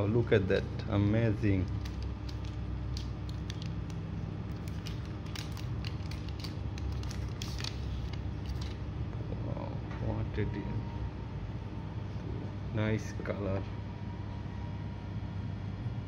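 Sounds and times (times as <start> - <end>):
steady low hum: 0.0 - 16.0
packaging crackling and rustling: 1.7 - 8.8.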